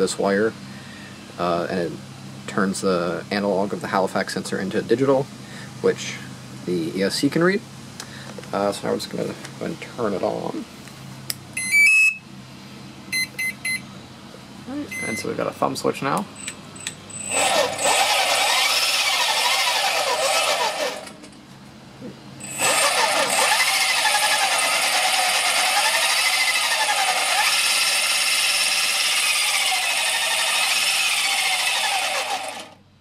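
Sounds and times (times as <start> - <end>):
electric motor whining: 17.2 - 21.2, 22.4 - 32.8.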